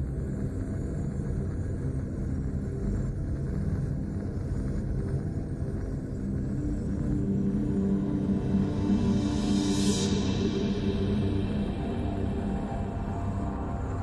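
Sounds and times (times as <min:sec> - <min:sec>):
low suspense drone: 0:00.0 - 0:14.0.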